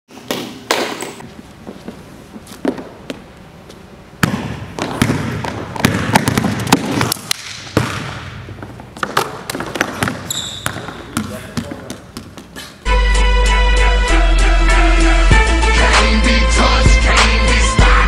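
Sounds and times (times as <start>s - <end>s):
basketball bouncing on hardwood floor: 4.2s - 12.5s.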